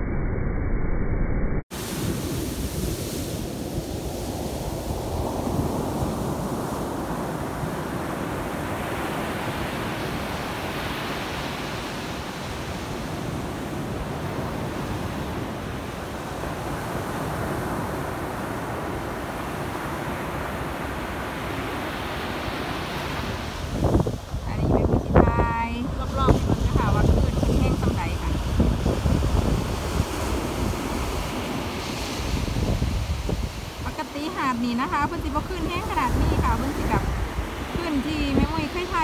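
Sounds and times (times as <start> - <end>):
surf breaking on beach: 1.7 - 39.0
wind on microphone: 1.7 - 39.0.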